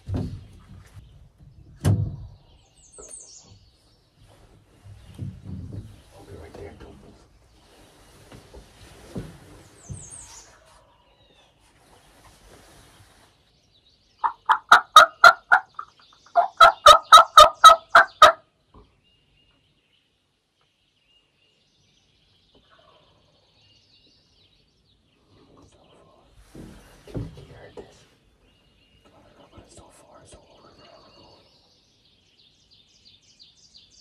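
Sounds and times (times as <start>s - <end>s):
turkey gobbling: 14.2s - 18.4s.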